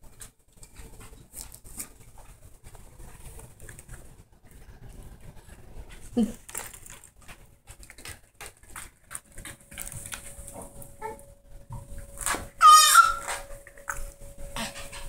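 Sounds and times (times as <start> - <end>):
dog claws clicking and tapping: 6.4 - 10.6
dog whimpering: 12.6 - 13.5.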